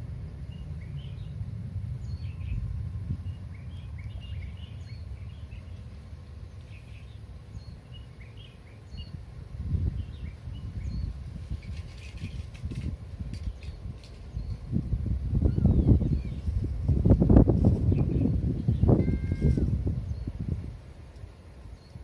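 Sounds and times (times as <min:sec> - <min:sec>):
low rumble: 0:00.0 - 0:06.9
small birds chirping: 0:00.3 - 0:01.4, 0:02.0 - 0:20.6, 0:21.6 - 0:22.0.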